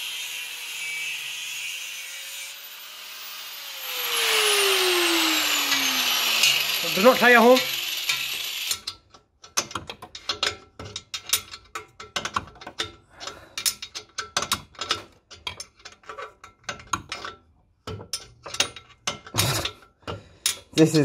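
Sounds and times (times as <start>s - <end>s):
ratchet wrench clicking: 7.6s - 9.0s.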